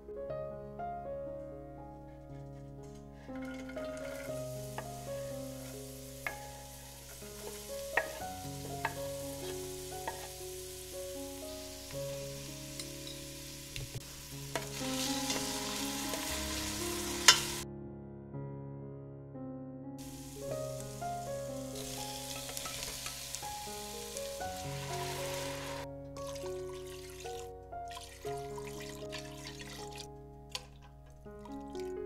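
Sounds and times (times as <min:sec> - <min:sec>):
soft piano music: 0:00.0 - 0:32.0
vegetables sizzling in oil: 0:03.4 - 0:17.6, 0:20.0 - 0:27.4
spatula clinking against pot: 0:07.1 - 0:10.4, 0:17.2 - 0:17.6, 0:21.8 - 0:23.4.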